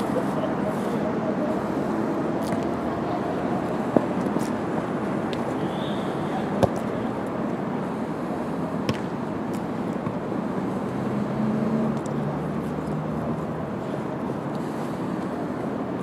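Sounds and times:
outdoor background noise: 0.0 - 16.0
football being kicked: 6.6 - 6.8, 8.8 - 9.1.

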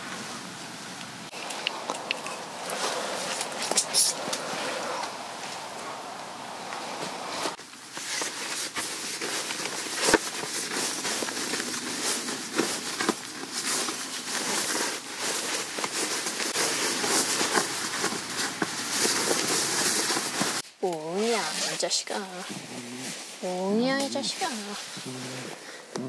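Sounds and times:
dog scratching sleeping bag: 2.4 - 5.0, 6.8 - 20.6
nylon shell crinkling: 7.6 - 20.6.

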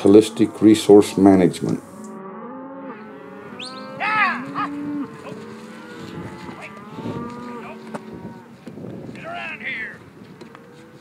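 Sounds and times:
cow bawling: 0.0 - 8.6
cattle lowing: 0.0 - 11.0.

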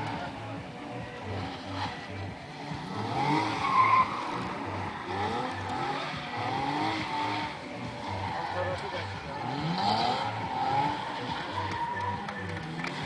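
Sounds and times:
car engine revving: 0.0 - 13.0
tyres squealing: 2.9 - 12.8.

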